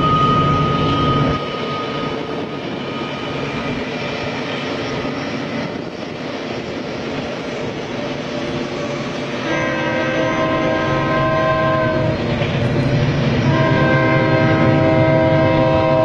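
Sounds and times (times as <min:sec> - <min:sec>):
train running: 0:00.0 - 0:16.0
train horn: 0:09.3 - 0:12.2, 0:13.4 - 0:16.0.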